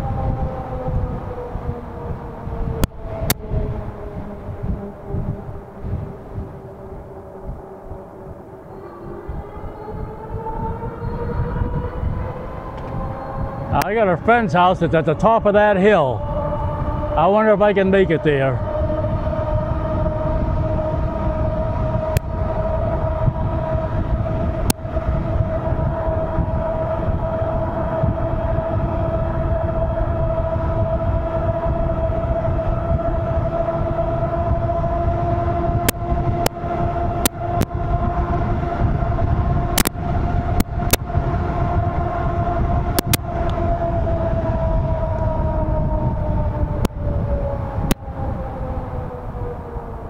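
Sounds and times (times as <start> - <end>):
electric bike motor whining: 0.0 - 14.6, 18.6 - 50.0
wind rumble on microphone: 0.0 - 50.0
sharp clicks: 39.8 - 40.0, 43.0 - 43.2.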